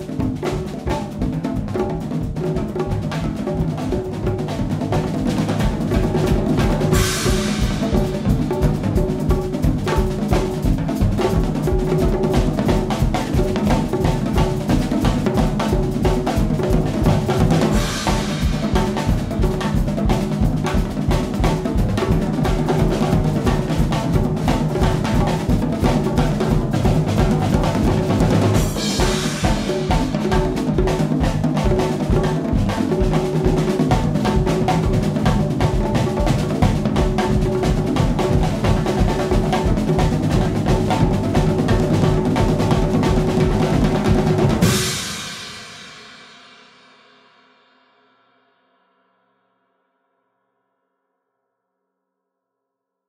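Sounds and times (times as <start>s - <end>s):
drum kits playing fast groove: 0.0s - 46.2s.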